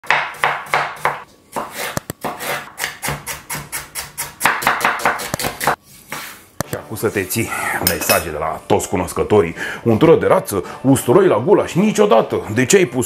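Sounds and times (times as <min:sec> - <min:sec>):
knife chopping on wooden board: 0:00.0 - 0:05.8.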